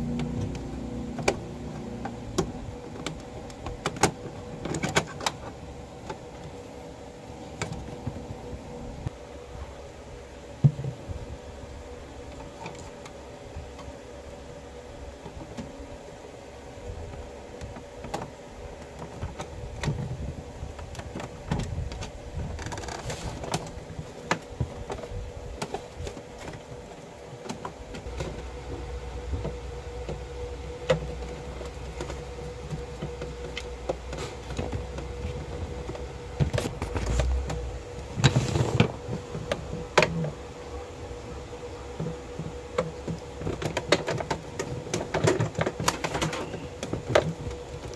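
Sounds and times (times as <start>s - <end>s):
faint steady hum: 0.0s - 47.9s
plastic parts clicking and scraping: 0.2s - 6.6s, 17.1s - 40.4s, 41.9s - 47.9s.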